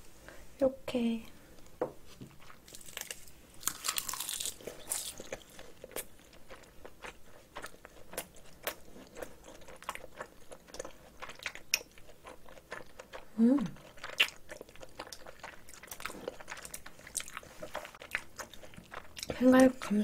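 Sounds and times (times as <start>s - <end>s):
crunchy chewing: 2.2s - 20.0s.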